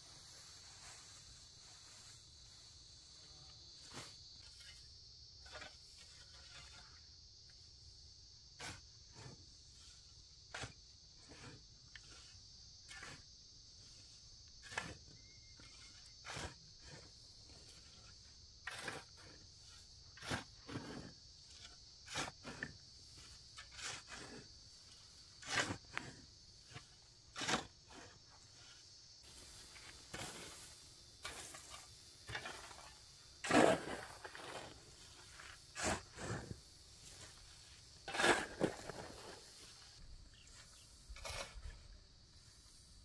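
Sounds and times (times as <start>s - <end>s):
shovel digging into dry earth: 14.6s - 41.9s.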